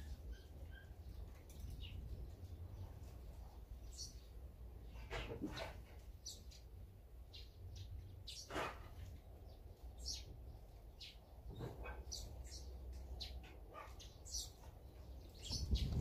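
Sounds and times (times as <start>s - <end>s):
small songbirds chirping: 0.0s - 16.0s.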